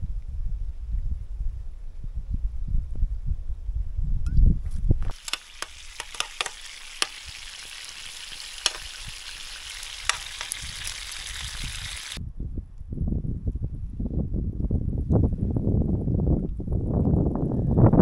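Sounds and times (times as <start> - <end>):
wind buffeting microphone: 0.0 - 18.0
food sizzling in a pan: 5.1 - 12.2
sharp pops and crackles: 5.1 - 12.2.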